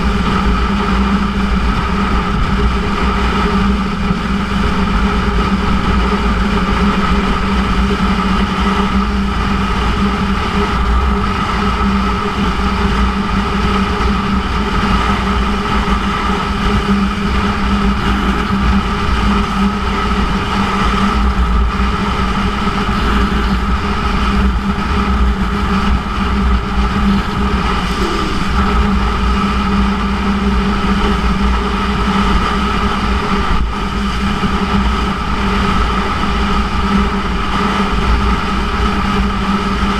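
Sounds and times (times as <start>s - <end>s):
low wind rumble: 0.0s - 39.9s
motorcycle engine cruising: 12.3s - 31.6s.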